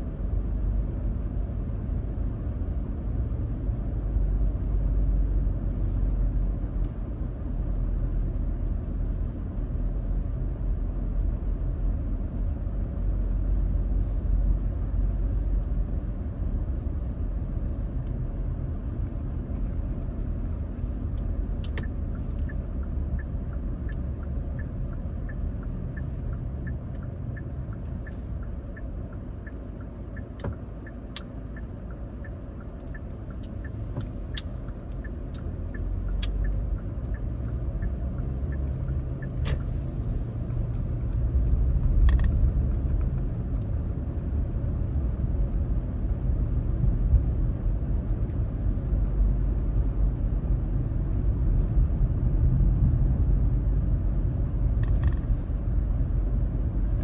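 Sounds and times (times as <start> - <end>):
car engine and tyres rumbling: 0.0 - 57.0
turn signal clicking: 21.0 - 46.3.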